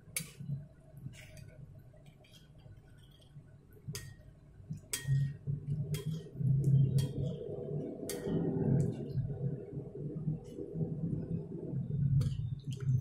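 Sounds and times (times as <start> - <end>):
low rumbling hum: 4.6 - 13.0.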